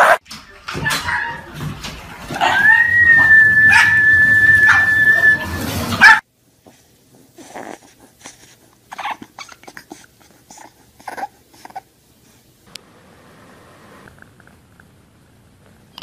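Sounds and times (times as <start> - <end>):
loud dog barking: 0.0 - 0.2, 3.7 - 5.0, 6.0 - 6.2
puppy howling and whimpering: 2.4 - 5.6.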